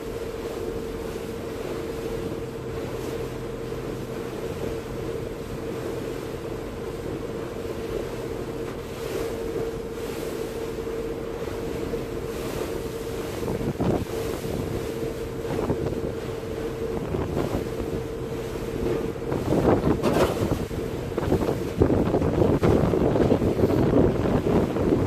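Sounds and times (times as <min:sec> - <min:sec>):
ferry engine hum: 0:00.0 - 0:25.0
wind buffeting microphone: 0:11.2 - 0:25.0.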